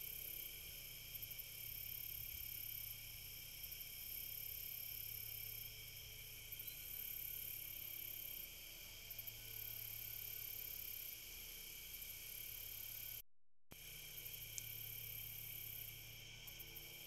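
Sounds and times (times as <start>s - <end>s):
insects chirping: 0.0s - 17.0s.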